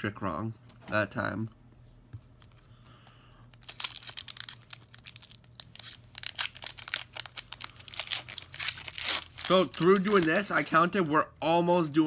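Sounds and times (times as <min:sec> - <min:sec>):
foil wrapper tearing and crinkling: 0:03.5 - 0:11.0.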